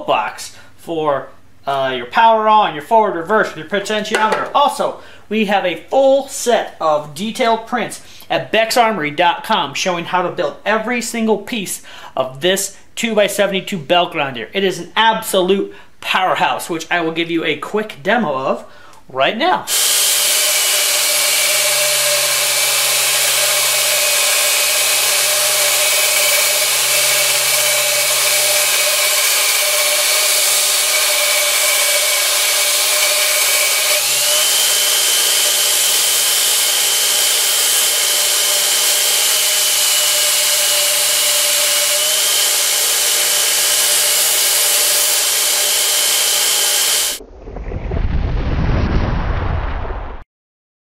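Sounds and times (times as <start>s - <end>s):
belt grinder grinding metal: 19.7s - 47.2s
deep boom: 47.2s - 50.2s.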